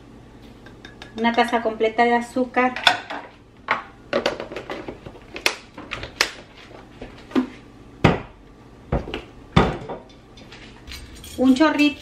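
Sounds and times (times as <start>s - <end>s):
kitchen utensils clicking and knocking: 9.7s - 12.0s.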